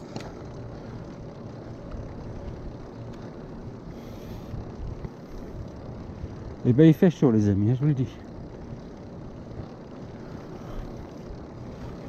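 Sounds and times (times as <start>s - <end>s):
tyres rumbling on asphalt: 0.0s - 12.0s
wind buffeting microphone: 1.0s - 6.7s.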